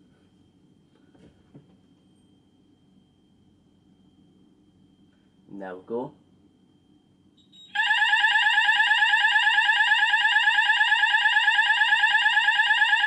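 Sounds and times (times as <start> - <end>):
fire alarm electronic sweeping tone: 7.4 - 13.0.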